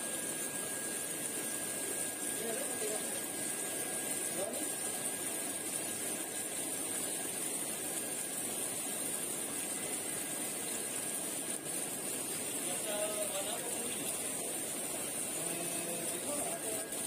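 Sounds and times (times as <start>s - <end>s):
moving pond water: 0.0s - 17.0s
faint high-pitched tone: 9.7s - 10.2s.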